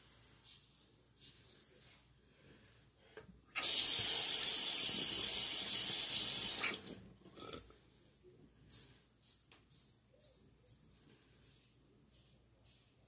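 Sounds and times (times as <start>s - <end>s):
tap water running into sink: 3.6s - 7.0s.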